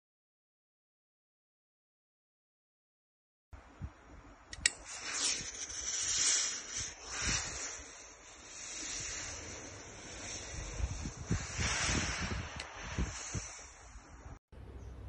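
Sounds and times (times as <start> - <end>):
sharp click: 4.5 - 4.8
steam iron hissing: 4.6 - 14.4.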